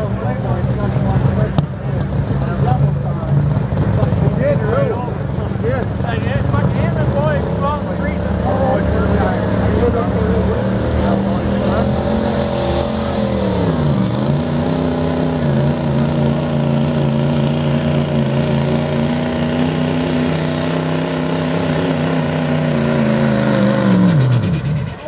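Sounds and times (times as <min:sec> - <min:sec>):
diesel truck engine at high revs: 0:00.0 - 0:25.0
turbo whine: 0:08.7 - 0:25.0.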